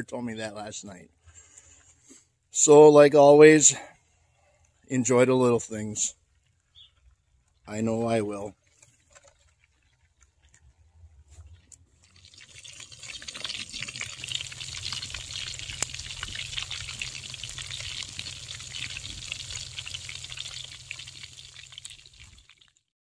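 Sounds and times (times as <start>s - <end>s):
meat deep-frying in hot oil: 12.0s - 22.9s.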